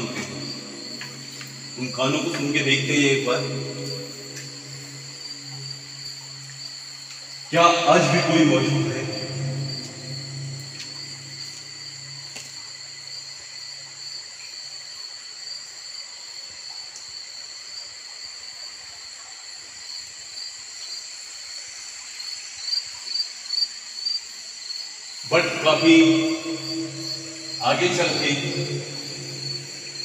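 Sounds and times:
insects shrilling: 0:00.0 - 0:13.3, 0:24.6 - 0:30.0
insect chirps: 0:00.0 - 0:30.0.

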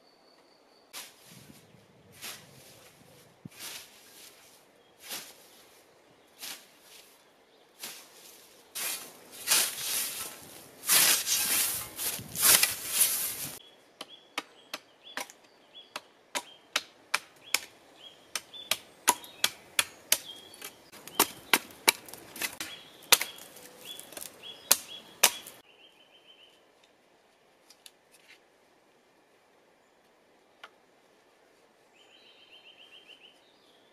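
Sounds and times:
scythe swishing through grass: 0:01.0 - 0:01.6, 0:02.2 - 0:05.8, 0:06.4 - 0:07.2, 0:07.8 - 0:13.6.

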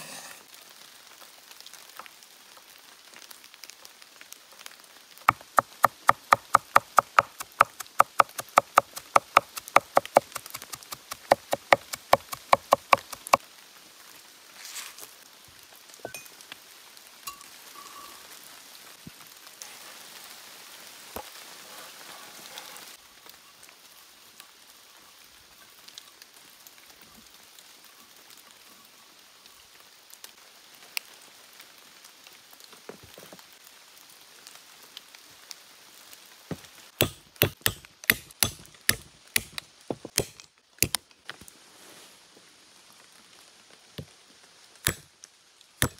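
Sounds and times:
knife scraping cutting board: 0:00.0 - 0:00.4
knife chopping on wooden board: 0:05.3 - 0:13.4, 0:37.0 - 0:41.0.

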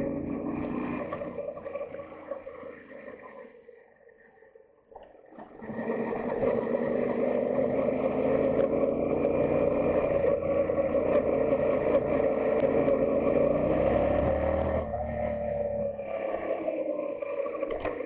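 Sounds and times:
gravel ticking under tyres: 0:06.4 - 0:18.0
motorcycle engine running: 0:06.7 - 0:16.0.

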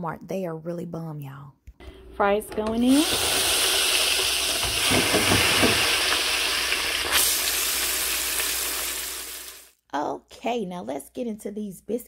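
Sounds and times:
fries sizzling in hot oil: 0:02.8 - 0:09.8.

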